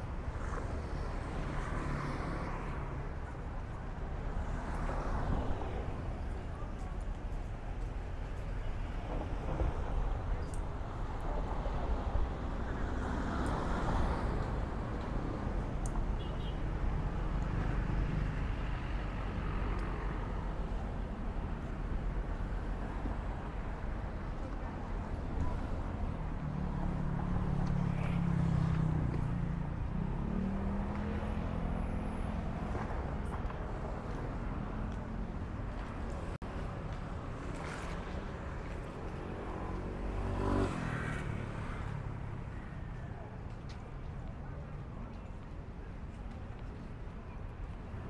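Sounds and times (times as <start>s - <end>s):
cars passing: 0.0s - 47.8s
motorbikes passing: 37.4s - 42.3s.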